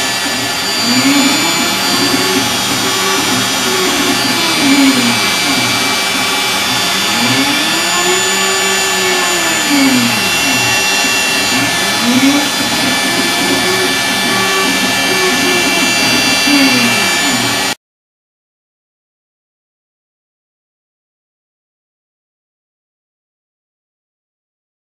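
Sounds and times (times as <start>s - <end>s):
router hissing and whining: 0.0s - 17.8s.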